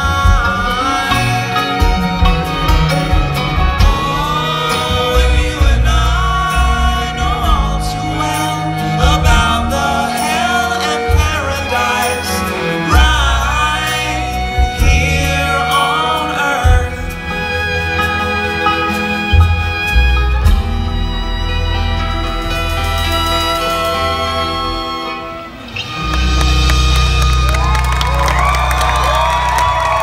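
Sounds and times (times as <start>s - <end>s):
person singing: 0.0s - 2.3s, 3.7s - 17.6s
string band playing live: 0.0s - 30.0s.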